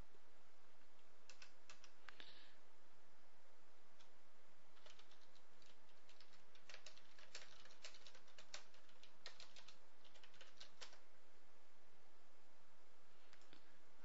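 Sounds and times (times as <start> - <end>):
typing on computer keyboard: 1.3 - 2.0, 4.8 - 11.0.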